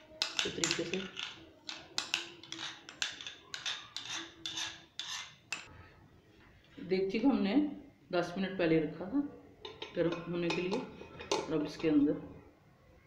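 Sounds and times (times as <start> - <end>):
utensil scraping batter from bowl: 0.2 - 5.7.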